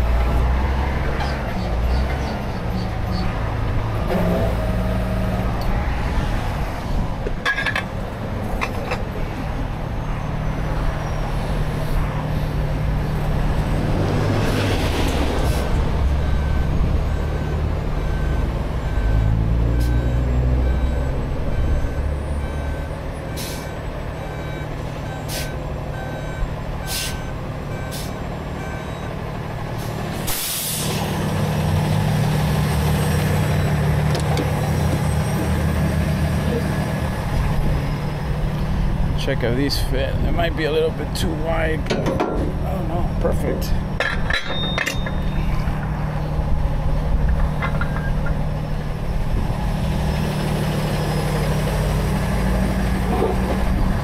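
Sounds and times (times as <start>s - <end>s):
diesel engine revving: 0.0s - 7.2s, 8.0s - 41.9s, 45.4s - 54.0s
air hiss burst: 30.3s - 31.0s.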